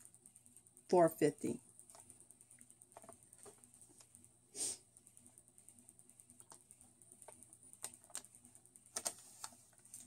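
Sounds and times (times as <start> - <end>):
paper receipt ticking: 5.0 - 10.0
paper rustle: 8.9 - 10.0.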